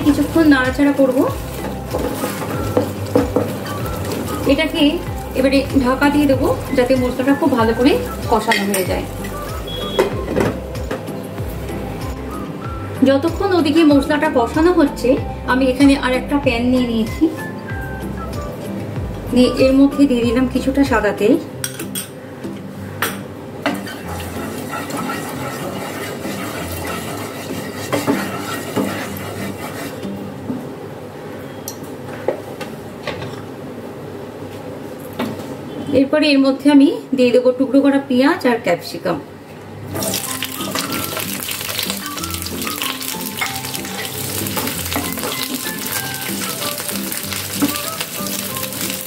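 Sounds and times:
faint background music: 0.0 - 32.2, 35.6 - 49.0
spatula scraping frying pan: 23.8 - 30.2, 40.1 - 49.0.

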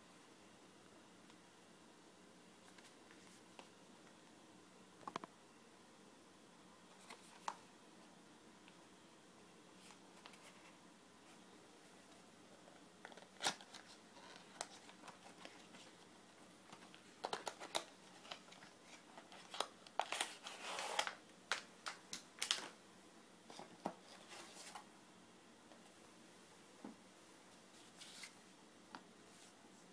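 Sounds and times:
wrapping crinkling and rustling: 13.0 - 22.8.

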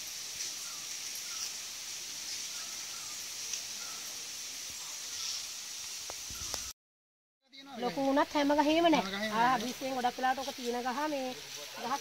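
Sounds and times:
insects droning: 0.0 - 6.7
voices: 7.6 - 12.0.

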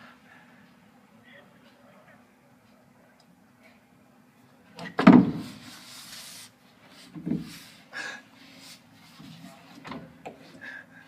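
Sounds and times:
steady low hum: 0.0 - 11.0
man gasping and breathing: 7.8 - 8.7, 10.5 - 11.0.

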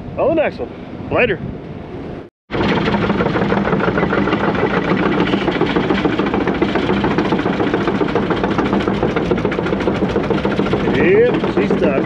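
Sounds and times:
engine idling: 2.5 - 12.0.

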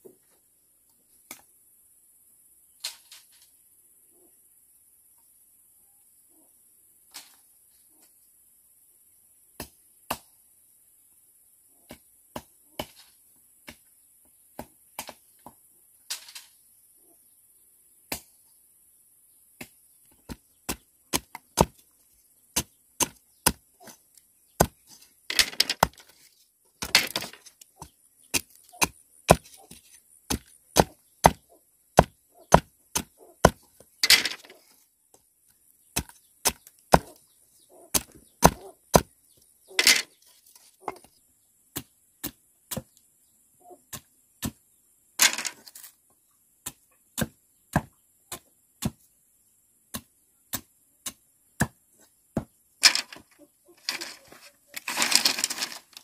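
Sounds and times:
knife chopping bamboo on wood: 19.6 - 21.8, 22.5 - 24.0, 26.8 - 31.4, 32.0 - 33.7, 36.0 - 37.2, 37.9 - 39.2, 46.6 - 49.0, 49.9 - 51.8.

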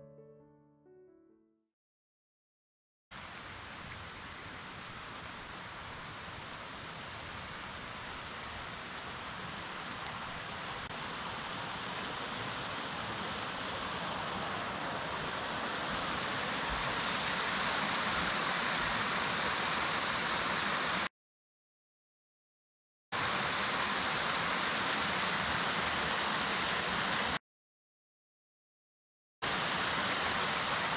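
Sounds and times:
flowing water rushing: 3.2 - 21.1, 23.2 - 27.4, 29.4 - 30.9.

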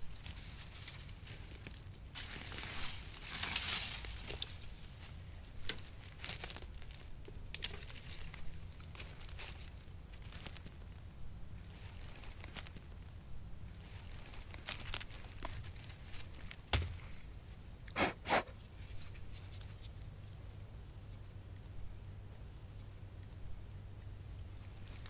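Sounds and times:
rustling through dry leaves: 0.0 - 17.5, 18.6 - 20.4, 24.5 - 25.0.

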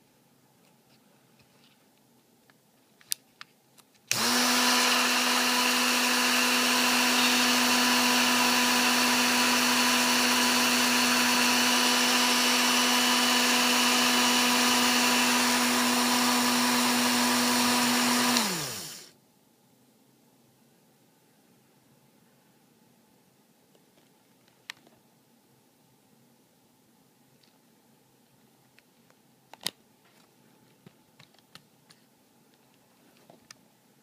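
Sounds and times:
rotary tool running: 4.1 - 19.1.

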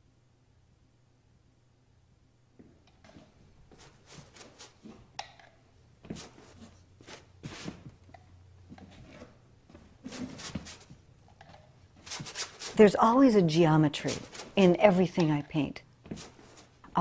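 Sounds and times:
palette knife scraping paint: 3.7 - 4.8, 12.0 - 12.9, 14.0 - 14.6.

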